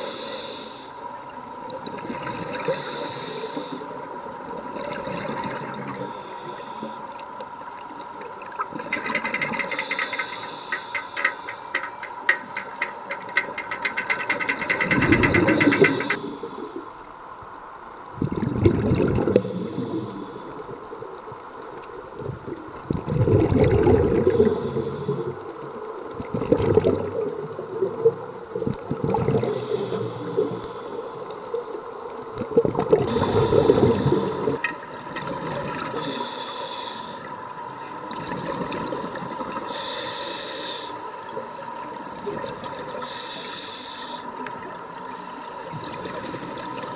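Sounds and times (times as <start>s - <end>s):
regulator hissing inhalations: 0.0s - 1.0s, 2.7s - 4.0s, 9.7s - 11.9s, 15.3s - 16.8s, 24.2s - 25.4s, 29.5s - 31.3s, 33.1s - 34.6s, 35.9s - 37.3s, 39.6s - 41.2s, 43.0s - 44.5s
rumbling bubble bursts: 18.2s - 19.4s, 22.9s - 24.3s, 26.2s - 27.3s, 28.6s - 29.5s.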